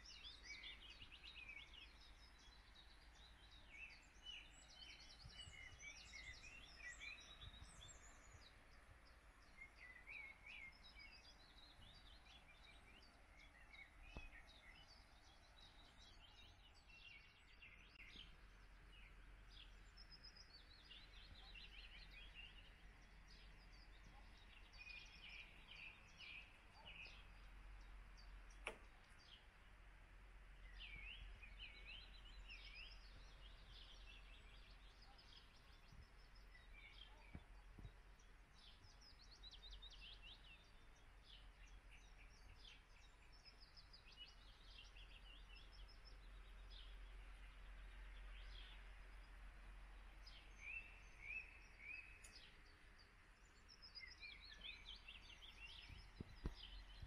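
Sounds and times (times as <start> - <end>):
small birds singing and chirping: 0.0 - 57.0
sharp click: 28.5 - 29.0.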